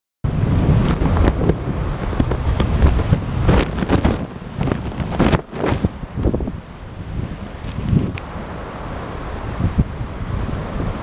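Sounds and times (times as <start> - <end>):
wind buffeting microphone: 0.2 - 11.0.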